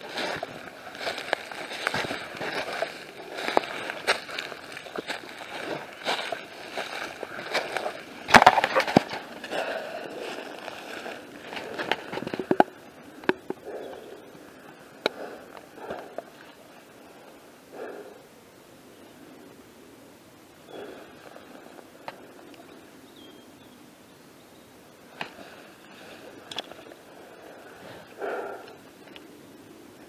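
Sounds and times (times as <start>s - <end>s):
footsteps crunching through dry leaves: 0.0s - 12.6s
twigs snapping: 0.1s - 9.8s.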